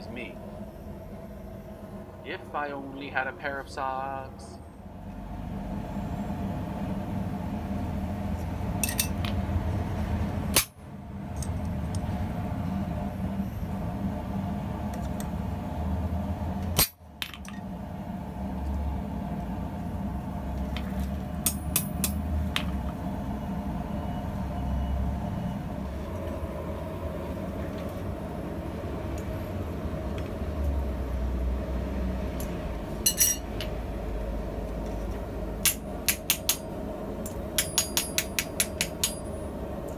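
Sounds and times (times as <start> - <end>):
metal tongs clinking on anvil: 8.8 - 9.2, 33.1 - 33.4.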